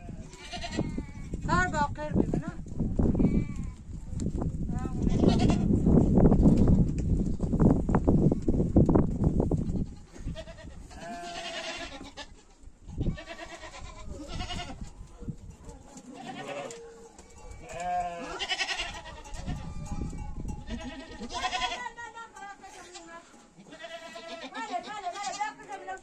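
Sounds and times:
goats bleating: 0.0s - 1.3s, 3.2s - 3.8s, 4.9s - 5.7s, 9.8s - 12.4s, 13.0s - 14.9s, 16.1s - 22.0s, 22.8s - 26.0s.

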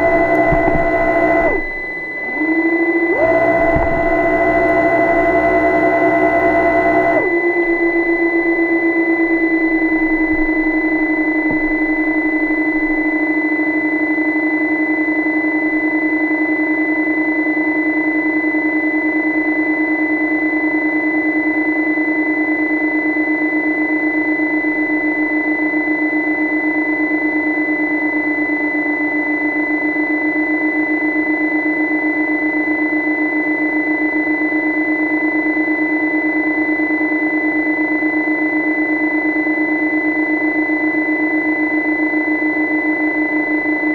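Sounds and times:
high-pitched whine: 0.0s - 29.0s
underwater mechanical hum: 0.0s - 43.9s.

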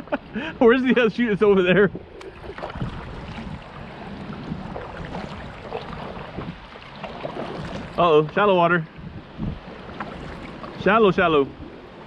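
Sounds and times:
water splashing against kayak hull: 1.2s - 12.0s
kayak paddle strokes: 1.9s - 8.5s, 9.4s - 11.2s.

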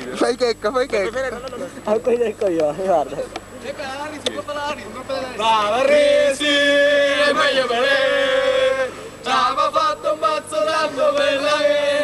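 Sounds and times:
men chanting together: 5.4s - 12.0s.

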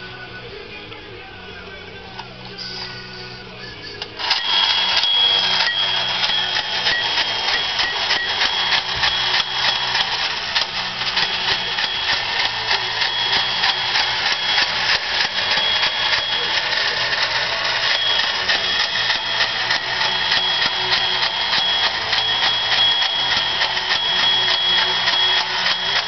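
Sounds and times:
toy car motor clattering: 2.7s - 26.0s.

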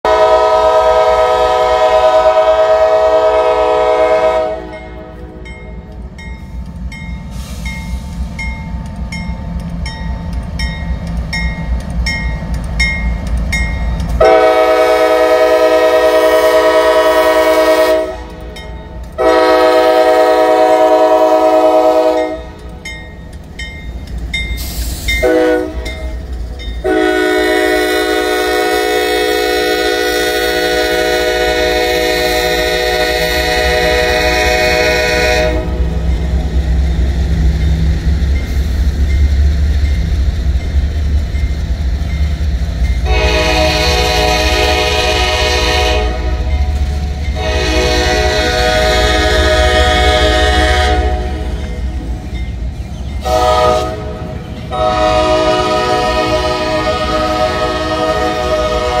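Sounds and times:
locomotive air horn: 0.0s - 5.5s, 14.2s - 18.5s, 19.2s - 22.6s, 24.8s - 25.9s, 26.8s - 36.0s, 43.0s - 46.6s, 47.3s - 51.6s, 53.2s - 59.0s.

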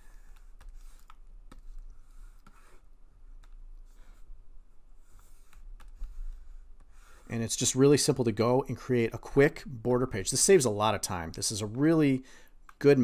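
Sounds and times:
computer mouse and key clicks: 0.2s - 2.8s, 3.4s - 3.6s, 5.1s - 6.2s.

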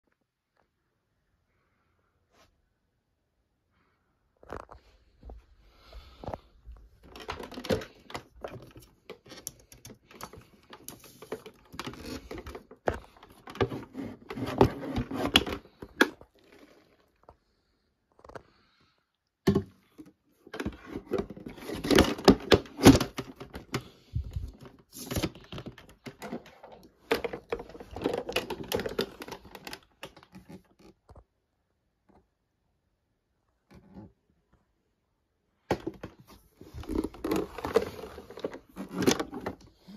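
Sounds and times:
plastic vacuum casing clicks and rattles: 7.0s - 16.2s, 19.5s - 30.6s.

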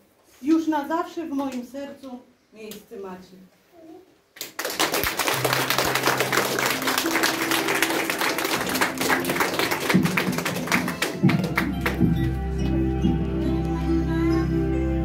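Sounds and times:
audience applauding: 4.4s - 12.8s
music backing track: 5.3s - 15.0s.

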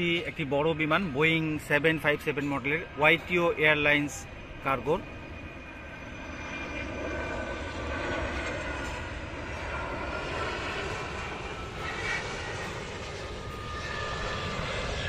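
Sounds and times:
distant jet engines rushing: 0.0s - 15.0s.

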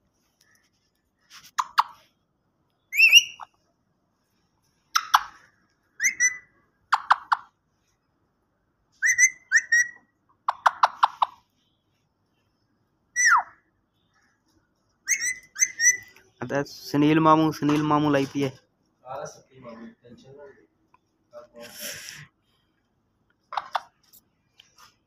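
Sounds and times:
parakeet clicking chatter: 1.5s - 2.0s, 4.9s - 7.6s, 9.0s - 11.4s, 23.5s - 24.0s
parakeet whistled calls: 2.9s - 3.5s, 6.0s - 7.4s, 9.0s - 11.3s, 13.1s - 13.6s, 15.0s - 16.2s.

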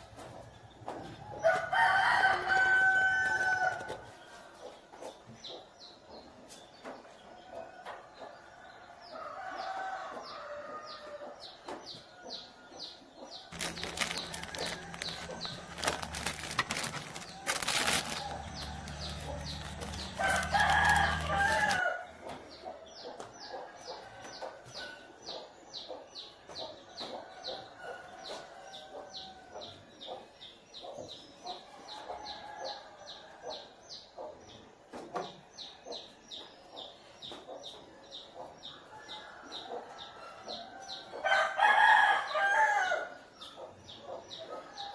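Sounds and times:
chickens clucking: 0.0s - 32.3s
rooster crowing: 1.4s - 3.9s, 13.5s - 22.1s.

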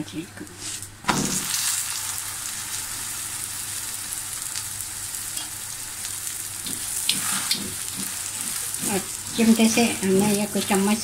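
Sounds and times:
flatbread sizzling on a pan: 0.6s - 11.0s
metal tongs scraping a pan: 6.6s - 10.9s.

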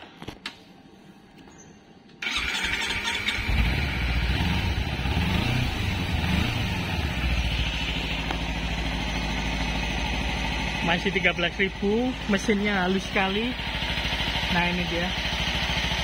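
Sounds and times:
motorcycle engine running: 2.2s - 16.0s
person talking: 10.8s - 13.6s.

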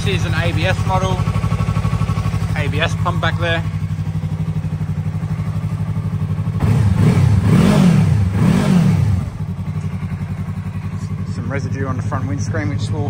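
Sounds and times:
motorcycle engine idling: 0.0s - 13.0s
engine revving: 5.9s - 10.0s.

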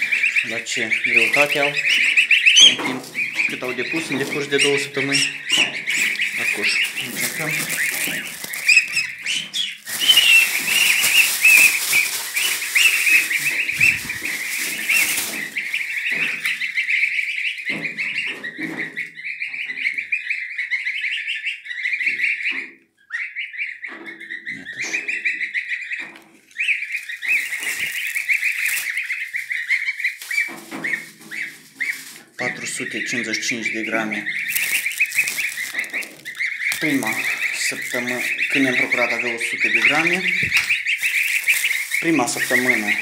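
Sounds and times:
goslings peeping: 0.0s - 43.0s
rustling and handling noise: 1.0s - 17.9s, 26.2s - 43.0s.

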